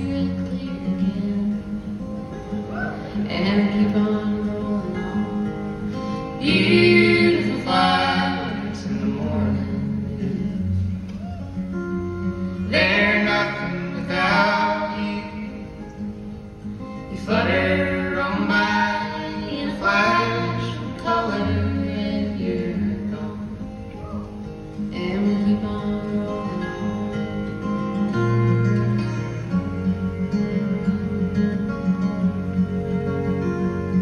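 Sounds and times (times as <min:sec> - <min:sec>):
acoustic guitar: 0:00.0 - 0:34.0
person singing: 0:06.4 - 0:11.6, 0:12.6 - 0:15.6, 0:17.1 - 0:27.2.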